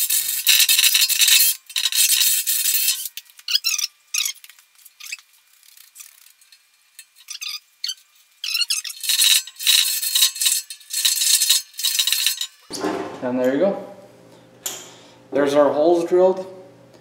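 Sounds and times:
deburring tool scraping steel: 0.0s - 3.2s, 8.4s - 12.8s
metal chips and tools clinking: 0.0s - 12.8s.

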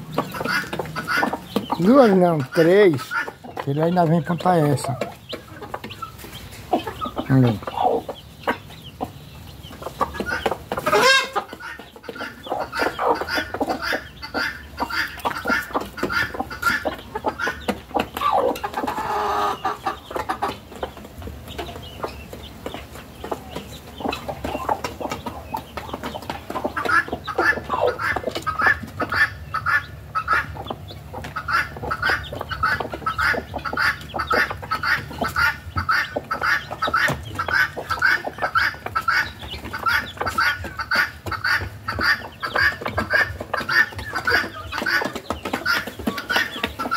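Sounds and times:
chicks peeping: 0.0s - 46.9s
hens clucking: 0.0s - 46.9s
loud chicken call: 10.8s - 11.5s, 18.2s - 19.8s.

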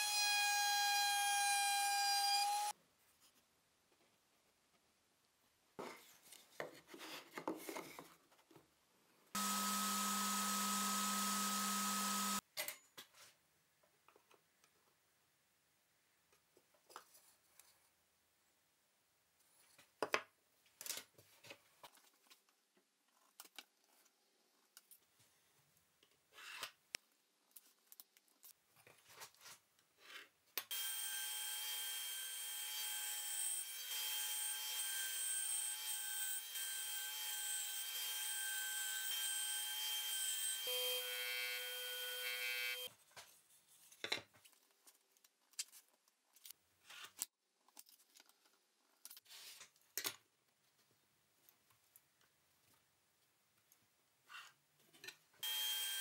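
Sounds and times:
bandsaw whining: 9.4s - 12.4s, 39.0s - 42.9s, 55.4s - 56.0s.

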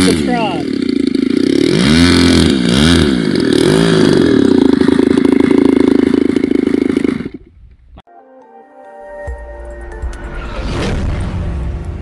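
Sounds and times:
model plane engine revving: 0.0s - 7.6s.

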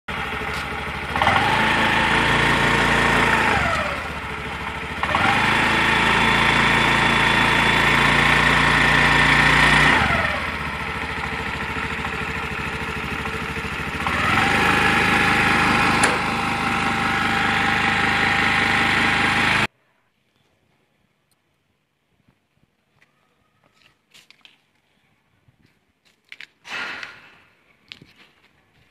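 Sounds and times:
scooter engine idling and revving: 0.1s - 19.7s.

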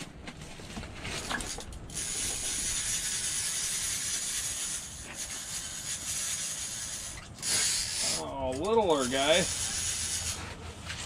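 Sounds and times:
fishing reel whirring: 1.4s - 8.3s, 8.9s - 10.4s.

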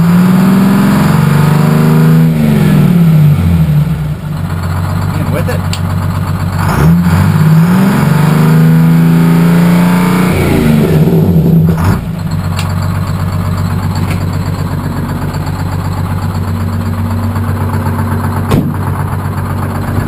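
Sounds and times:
diesel truck engine revving: 0.0s - 20.0s
sharp knock: 18.5s - 19.0s.

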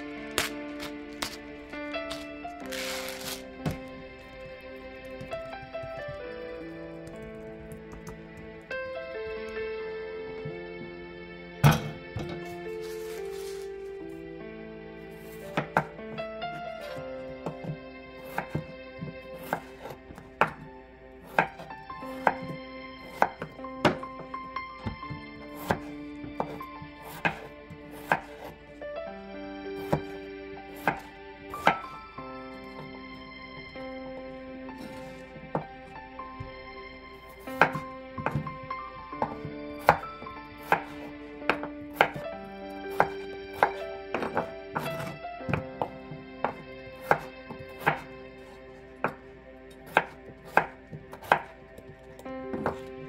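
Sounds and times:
soft background music: 0.0s - 53.0s
knife chopping on wooden board: 0.3s - 1.4s, 15.2s - 16.0s, 16.8s - 24.1s, 24.8s - 28.6s, 29.8s - 30.2s, 30.8s - 32.0s, 34.8s - 35.7s, 37.4s - 38.6s, 39.2s - 42.2s, 42.9s - 49.2s, 49.8s - 52.9s.

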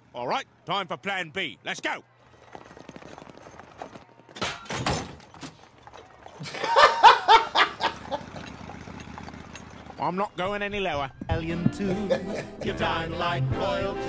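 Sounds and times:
horse hooves clip-clopping: 2.0s - 12.2s
man laughing loudly: 6.4s - 8.5s, 11.8s - 12.8s.

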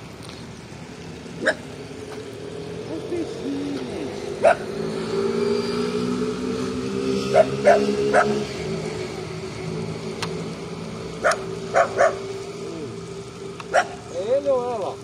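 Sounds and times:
dog barking: 4.4s - 4.6s, 7.3s - 8.4s, 11.2s - 12.2s, 13.7s - 14.0s.

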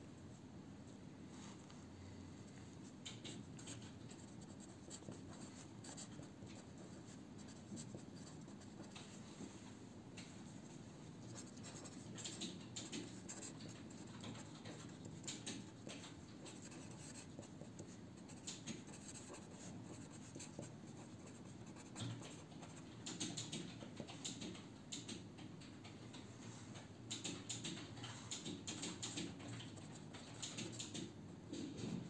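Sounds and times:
pen scratching on paper: 3.6s - 9.0s, 11.3s - 12.1s, 13.2s - 22.7s.

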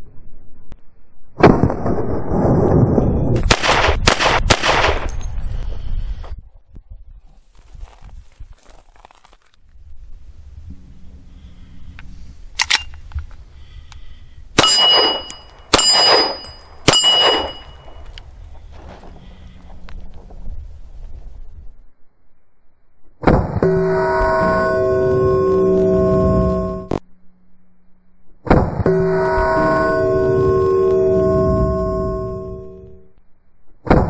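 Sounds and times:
pistol shots: 3.4s - 5.1s, 14.6s - 17.9s
steel gong target ringing: 14.6s - 18.0s, 28.9s - 32.9s
steel plate target ringing: 14.6s - 18.1s.

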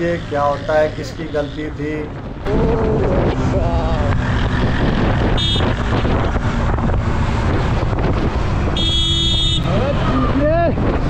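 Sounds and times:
motorcycle engine and tyres: 0.0s - 11.0s
wind noise on microphone: 2.1s - 11.0s
horn beeping: 5.3s - 5.8s, 8.8s - 9.8s.

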